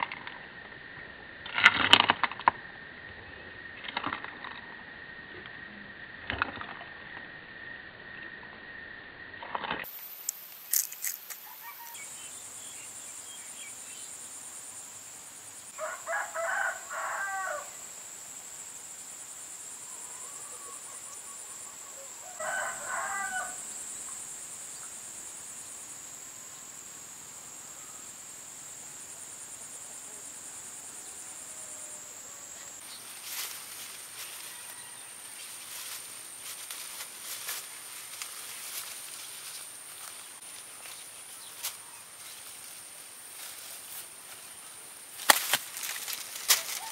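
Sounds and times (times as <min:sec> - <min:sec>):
rustling through corn leaves: 0:09.5 - 0:12.2, 0:32.6 - 0:46.9
rooster crowing: 0:11.4 - 0:12.3, 0:15.8 - 0:17.8, 0:21.9 - 0:23.8, 0:34.2 - 0:35.6, 0:46.6 - 0:46.9.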